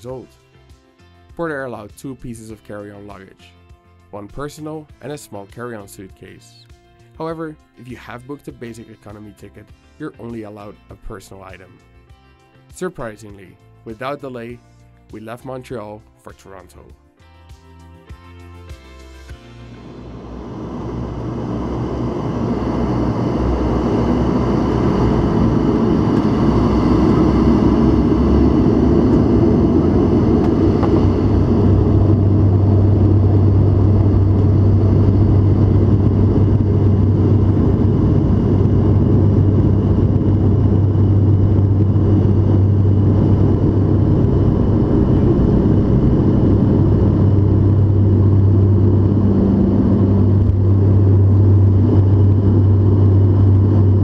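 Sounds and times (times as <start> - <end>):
turboprop engines droning: 19.5 - 54.0.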